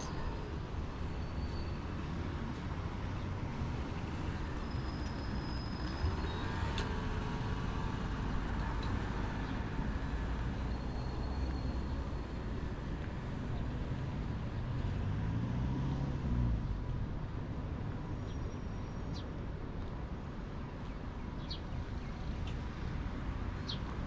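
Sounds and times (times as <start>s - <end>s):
rumble of passing traffic: 0.0s - 24.0s
vehicle engine passing by: 13.9s - 16.6s.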